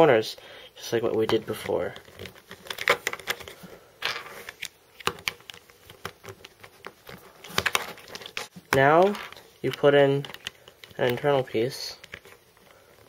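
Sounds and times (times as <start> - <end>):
plastic puzzle pieces clicking: 9.0 - 11.3.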